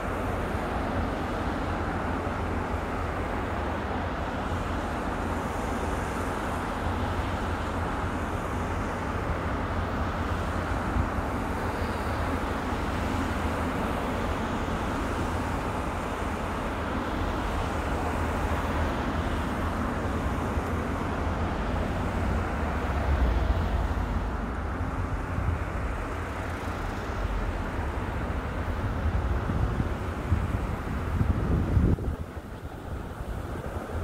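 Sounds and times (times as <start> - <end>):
vehicles driving past: 0.0 - 34.0.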